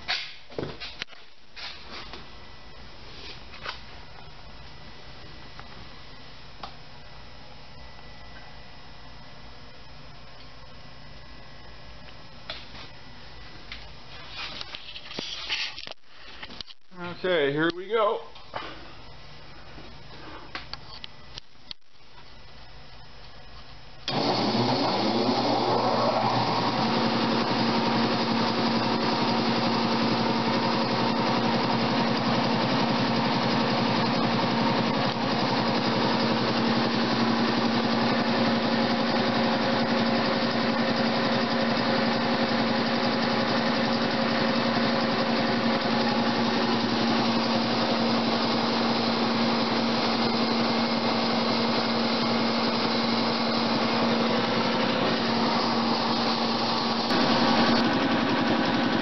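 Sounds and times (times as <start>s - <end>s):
air compressor running: 24.0s - 59.0s.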